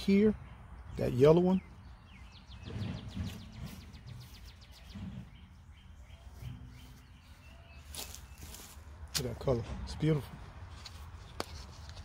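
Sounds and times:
small bird singing: 0.0s - 9.1s.

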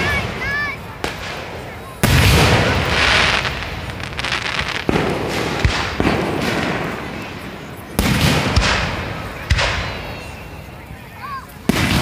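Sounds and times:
fireworks crackling: 0.0s - 12.0s
fireworks sharp reports: 0.0s - 12.0s
fireworks loud boom: 1.0s - 7.3s.

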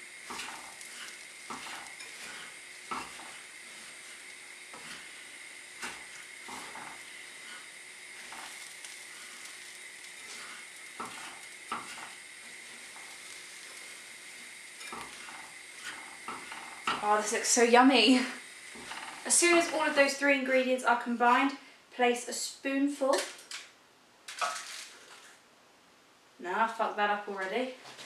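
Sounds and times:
pan sizzling: 0.0s - 25.4s
spoons scraping metal saucepan: 0.2s - 17.3s.

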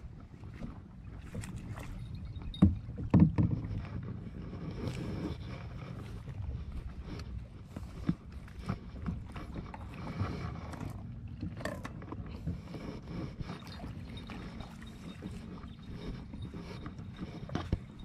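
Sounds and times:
water lapping against hull: 0.0s - 18.0s
wind rumble on microphone: 0.0s - 18.0s.

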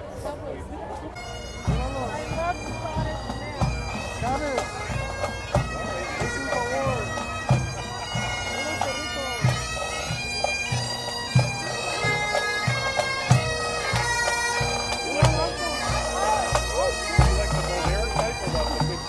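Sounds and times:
bagpipes playing: 1.2s - 19.0s
marching drums: 1.2s - 19.0s.

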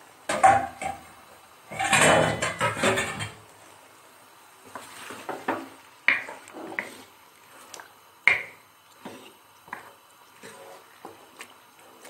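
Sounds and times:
wooden spoon scraping wet food: 4.7s - 5.5s, 6.2s - 7.8s, 8.9s - 12.0s.

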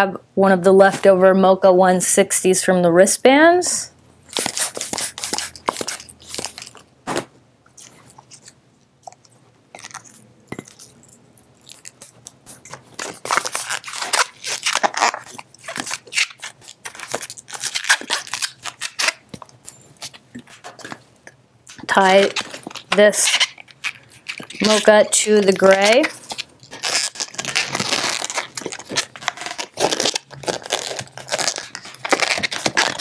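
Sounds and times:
balloon squeaking and crackling: 13.0s - 19.3s, 21.7s - 33.0s.

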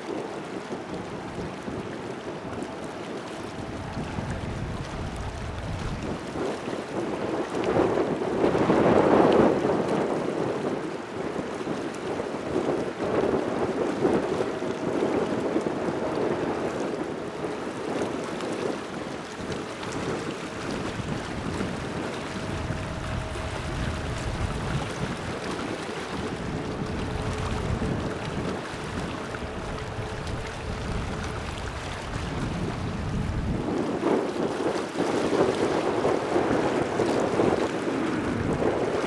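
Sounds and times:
wind buffeting microphone: 0.0s - 39.0s
jet engines rumbling: 17.2s - 33.6s.

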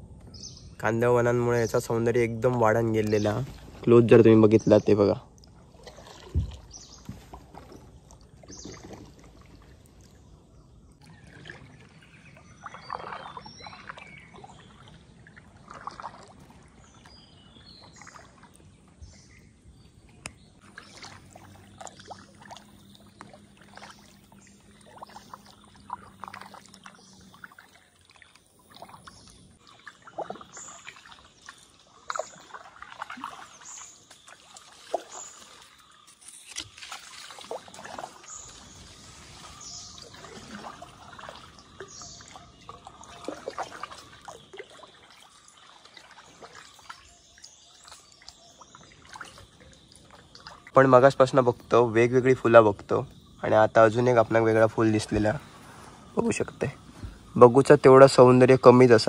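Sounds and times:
water trickling off paddle: 1.5s - 59.0s
paddle splashing in water: 5.4s - 51.7s
bird chirps: 11.0s - 14.9s, 38.0s - 58.9s.

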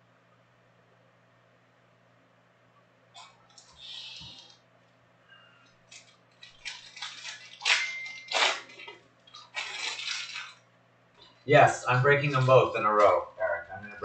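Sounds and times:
plastic and foil packaging rustling: 5.8s - 10.6s.

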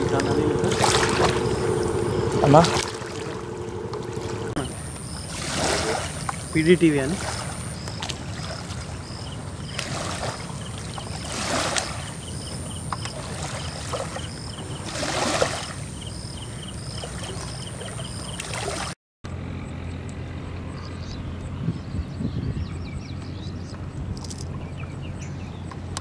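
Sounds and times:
flooding river rushing: 0.0s - 16.0s.

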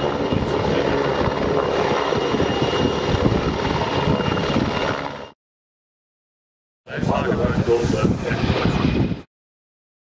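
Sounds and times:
helicopter hovering overhead: 0.0s - 5.4s, 6.9s - 9.3s.

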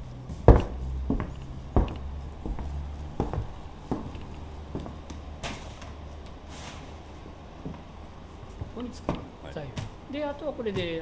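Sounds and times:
footsteps on wooden floor: 0.0s - 6.4s
low steady rumble: 0.0s - 9.4s.

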